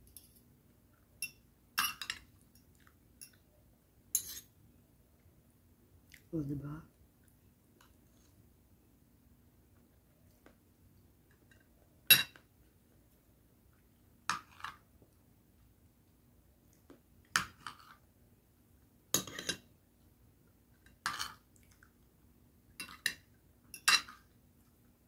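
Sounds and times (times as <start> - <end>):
cutlery clinking on a plate: 1.2 - 3.4, 4.2 - 4.5, 12.1 - 12.4, 19.2 - 19.7, 22.8 - 24.2.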